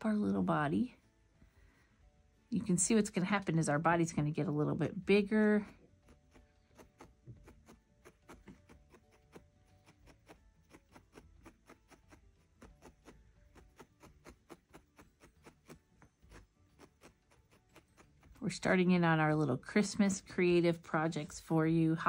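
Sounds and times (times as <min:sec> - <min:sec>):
felting needle stabbing wool: 0:04.4 - 0:20.4.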